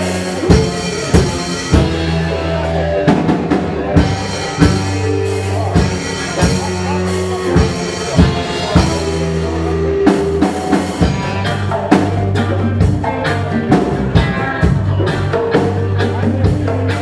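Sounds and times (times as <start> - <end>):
drum kit: 0.0 - 17.0
electric guitar: 0.0 - 17.0
low bass notes: 0.0 - 17.0.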